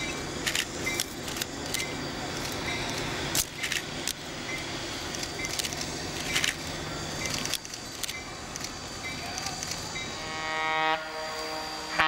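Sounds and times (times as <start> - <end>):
diesel locomotive idling: 0.0 - 12.0
steam locomotive venting steam: 0.0 - 12.0
sharp clicks: 0.4 - 9.8.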